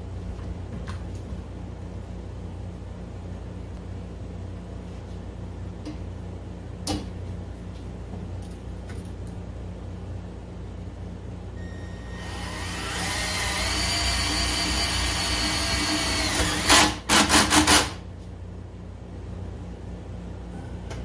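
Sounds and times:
cordless drill motor whine: 11.6 - 16.9.

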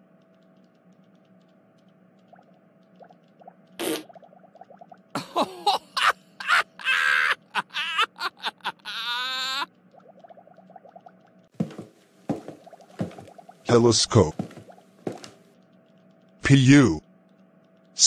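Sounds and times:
cartoon man laughing: 5.2 - 9.7.

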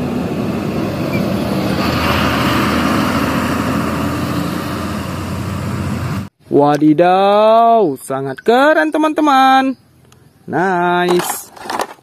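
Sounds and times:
truck engine running: 0.0 - 6.3.

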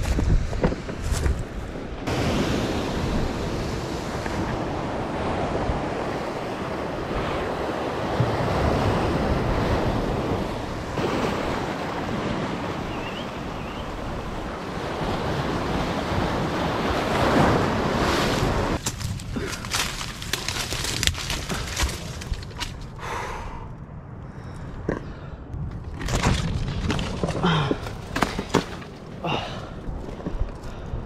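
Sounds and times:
wind buffeting microphone: 0.0 - 31.0
surf breaking on rocks: 10.8 - 22.6.

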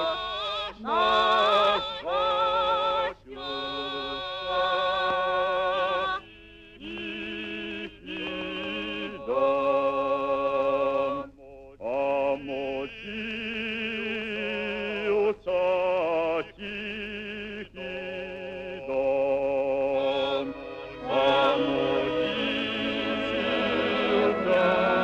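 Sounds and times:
operatic voice singing: 6.8 - 25.0.

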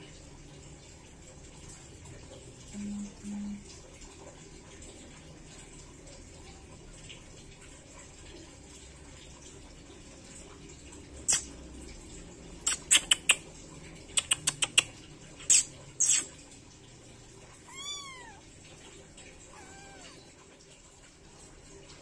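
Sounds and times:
kitten mewing: 17.6 - 18.4, 19.4 - 20.3.

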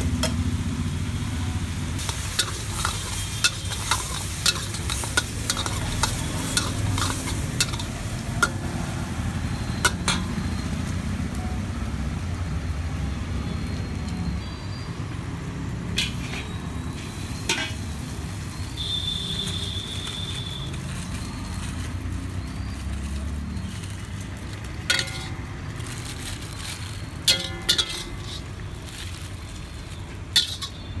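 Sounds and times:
spatula scraping iron wok: 2.0 - 9.0, 16.0 - 16.6, 24.8 - 31.0.

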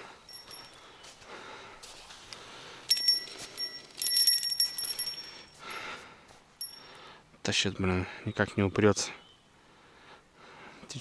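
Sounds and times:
fishing rod bell jingling: 0.2 - 0.9, 2.8 - 5.9, 6.6 - 7.0.

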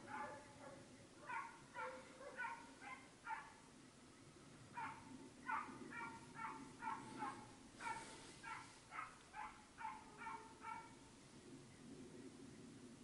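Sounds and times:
hounds barking: 0.0 - 3.6, 4.7 - 11.0.

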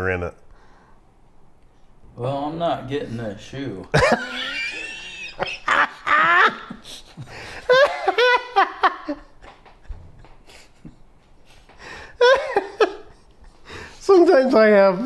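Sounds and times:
men laughing heartily: 3.9 - 14.0.

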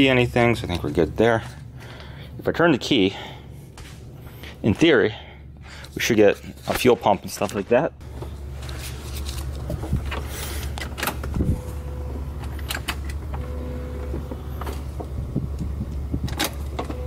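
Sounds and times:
fuel pump humming: 9.5 - 17.0.

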